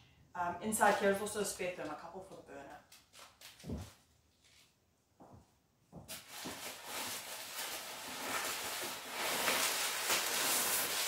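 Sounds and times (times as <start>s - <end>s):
bubble wrap crinkling: 6.1s - 11.0s.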